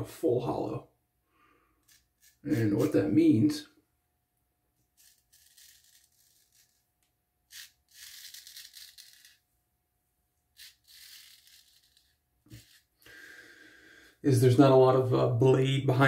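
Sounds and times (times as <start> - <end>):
straight razor scraping stubble: 1.8 - 3.0, 4.8 - 6.9, 7.5 - 9.4, 10.6 - 13.0.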